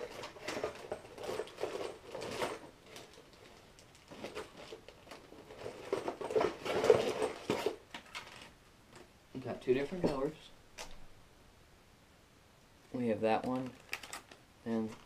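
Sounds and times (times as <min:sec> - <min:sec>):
rummaging through cardboard box: 0:00.0 - 0:08.5.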